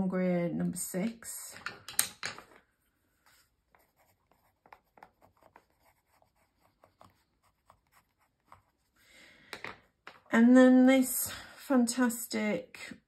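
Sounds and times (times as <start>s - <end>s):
pencil scratching on paper: 3.2s - 9.0s.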